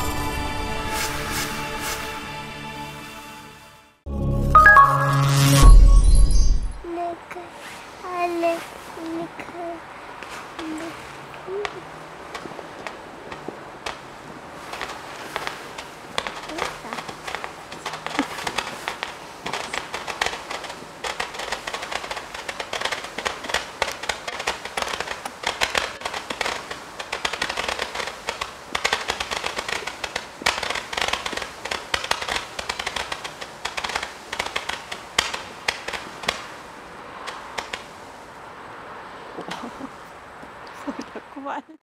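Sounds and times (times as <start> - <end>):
firework launch pops: 12.3 - 38.0.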